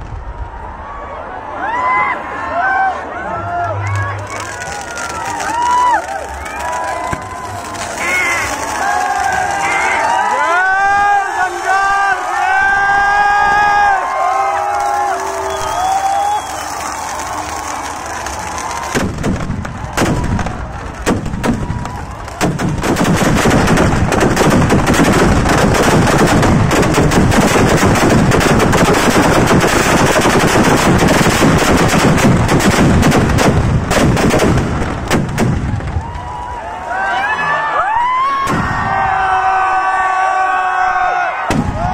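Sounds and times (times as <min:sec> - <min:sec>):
firecrackers exploding: 0:03.9 - 0:36.8.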